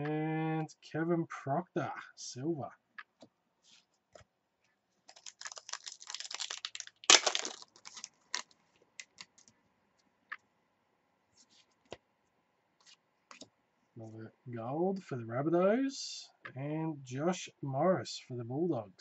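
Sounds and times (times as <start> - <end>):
foil pack crinkling: 5.0 - 9.5
cards clicking: 5.1 - 9.5.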